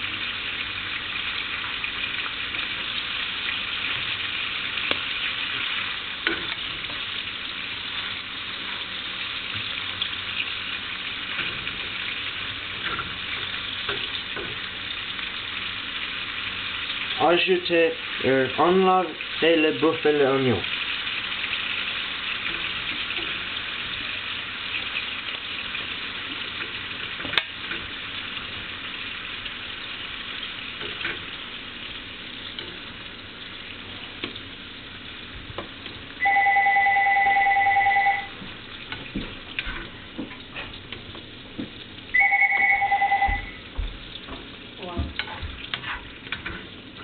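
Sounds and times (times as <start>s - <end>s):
meat sizzling in a pan: 0.0s - 36.4s, 38.3s - 42.3s, 43.4s - 47.0s
two-tone electronic beep: 42.2s - 43.6s.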